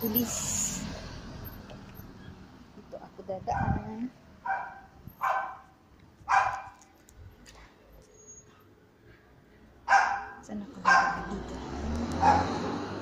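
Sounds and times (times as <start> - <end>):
dog barking: 4.4 - 5.7, 6.3 - 6.8, 9.9 - 11.4, 12.2 - 12.6.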